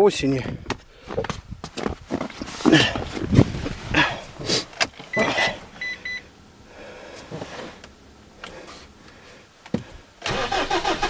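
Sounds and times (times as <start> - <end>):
dashboard electronic beeps: 5.1 - 6.2
diesel engine starting and idling: 10.2 - 11.0.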